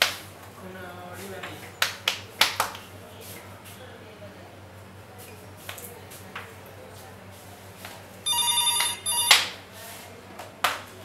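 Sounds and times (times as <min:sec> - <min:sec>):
electronic telephone ringing: 0:08.2 - 0:09.5.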